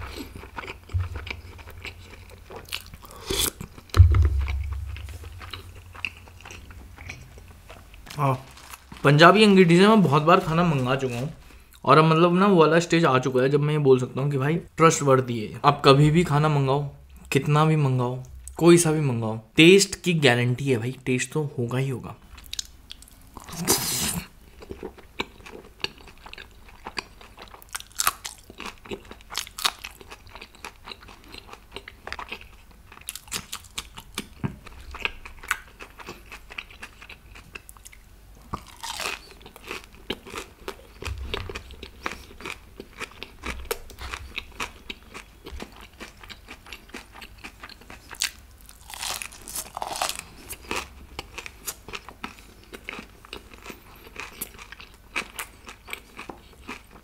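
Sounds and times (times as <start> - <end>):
person chewing and crunching: 0.0 - 9.0, 22.4 - 57.0.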